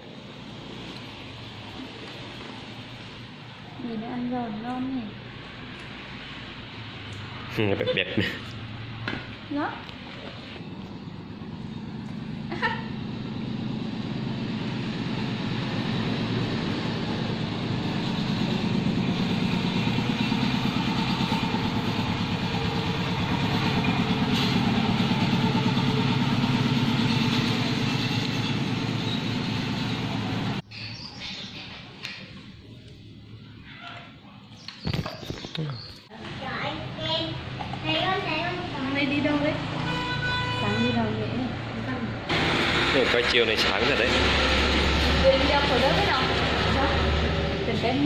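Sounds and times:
vehicle engine running: 6.0s - 30.6s, 40.8s - 48.0s.

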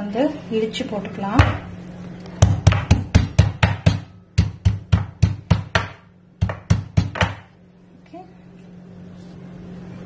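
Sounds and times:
stone pestle pounding in mortar: 2.4s - 7.5s.

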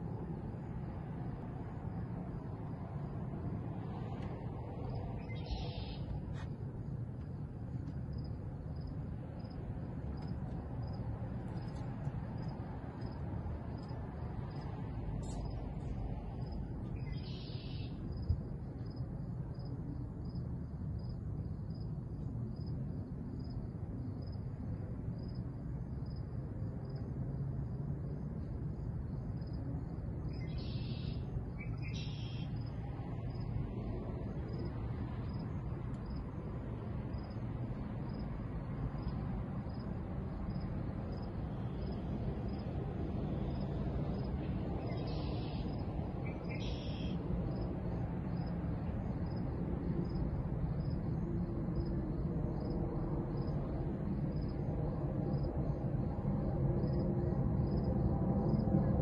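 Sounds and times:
low steady rumble: 0.0s - 59.0s
faint high chirp: 5.2s - 6.1s, 16.9s - 18.0s, 30.4s - 32.6s
short bird calls: 5.3s - 6.1s.

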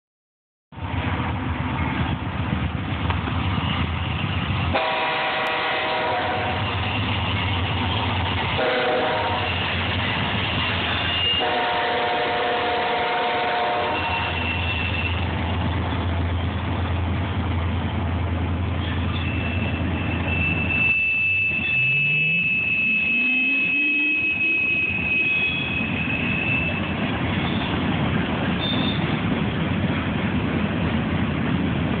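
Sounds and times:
diesel locomotive rumble: 0.7s - 32.0s
train cars rolling on rails: 0.8s - 32.0s
high wheel squeal: 9.2s - 11.6s, 13.8s - 16.6s, 18.7s - 29.2s.

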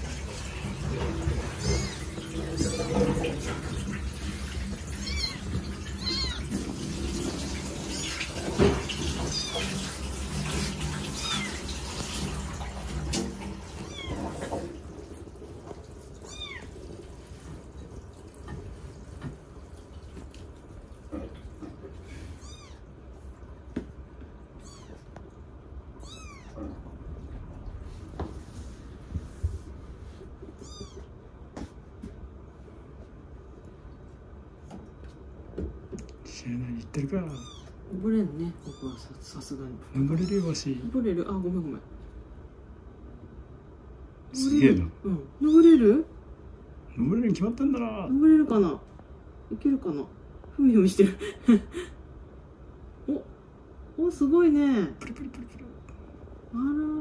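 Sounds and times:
kitten mewing: 1.5s - 3.2s, 4.9s - 6.6s, 9.2s - 9.7s, 11.1s - 11.7s, 13.7s - 14.4s, 16.2s - 16.8s, 22.2s - 22.9s, 24.5s - 25.2s, 26.0s - 27.0s, 30.4s - 31.2s, 37.2s - 39.4s, 40.0s - 40.6s, 44.3s - 45.8s.

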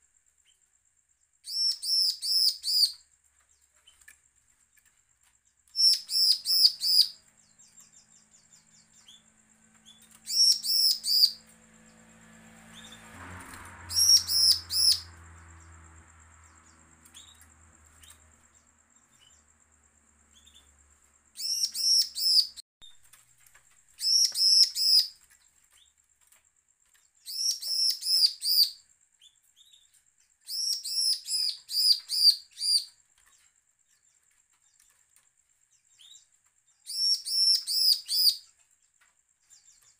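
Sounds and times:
bird singing rapid notes: 1.4s - 3.0s, 5.7s - 22.6s, 23.9s - 25.2s, 27.2s - 29.9s, 30.5s - 33.0s, 35.9s - 38.5s.

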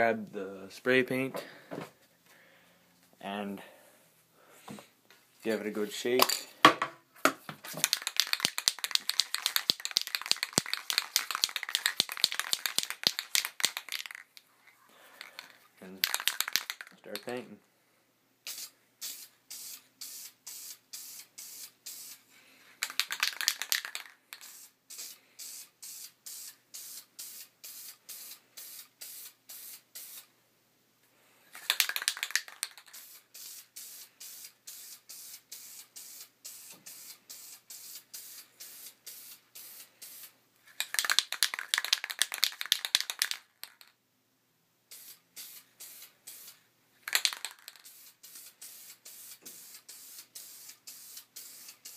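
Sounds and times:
spray paint can hissing: 7.7s - 14.3s, 15.3s - 17.3s, 18.4s - 30.3s, 31.6s - 43.8s, 44.9s - 51.9s.

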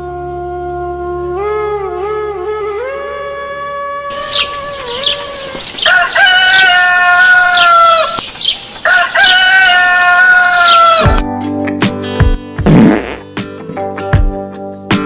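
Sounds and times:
small birds chirping: 4.1s - 9.8s
rooster crowing: 4.1s - 11.1s.

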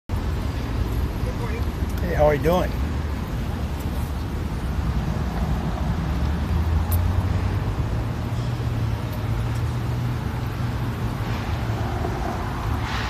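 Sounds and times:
vehicle engines rumbling: 0.1s - 13.0s.

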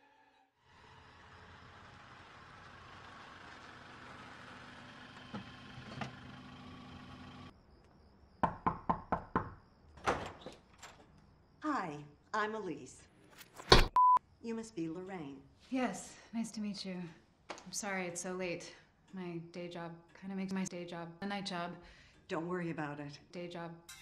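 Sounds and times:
car engine running: 1.2s - 7.5s
knocking on wooden door: 8.4s - 9.6s.

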